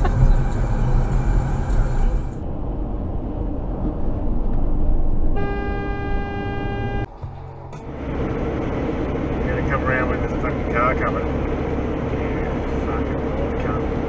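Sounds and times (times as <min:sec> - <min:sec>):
car road and engine rumble: 0:00.0 - 0:14.0
car horn blast: 0:05.3 - 0:07.1.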